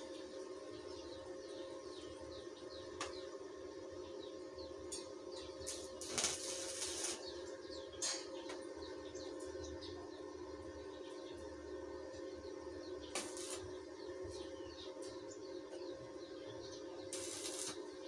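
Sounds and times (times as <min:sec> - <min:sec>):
birds chirping: 0:00.0 - 0:18.0
machine hum: 0:00.0 - 0:18.0
arc welding crackle: 0:04.9 - 0:08.6, 0:13.1 - 0:13.8, 0:17.1 - 0:17.9
hissing weld: 0:05.6 - 0:07.3, 0:13.1 - 0:13.7, 0:17.1 - 0:17.8.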